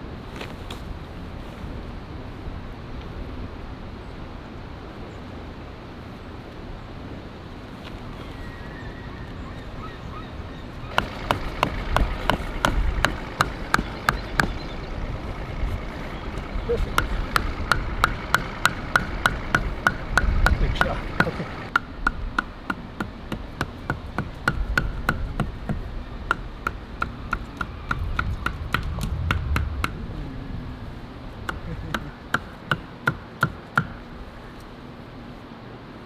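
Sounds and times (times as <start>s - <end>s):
tent stake hammered into sand: 17.0s - 30.0s.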